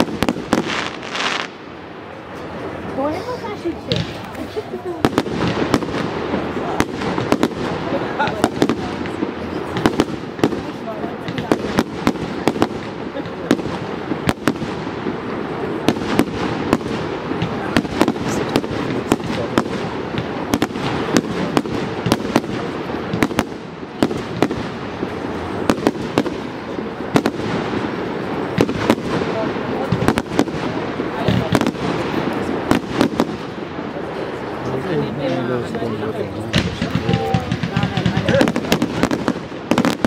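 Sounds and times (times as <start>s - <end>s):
fireworks bangs: 0.0s - 40.0s.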